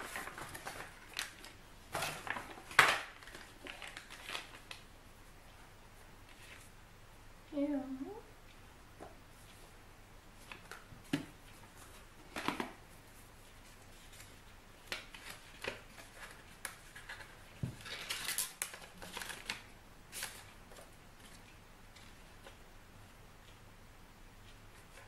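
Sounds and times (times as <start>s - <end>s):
paper rustling and crackling: 0.0s - 4.8s, 13.6s - 22.6s.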